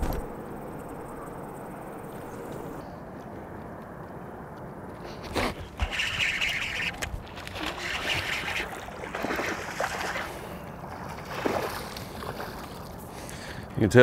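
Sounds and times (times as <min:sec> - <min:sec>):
fish splashing at the surface: 0:05.8 - 0:13.0.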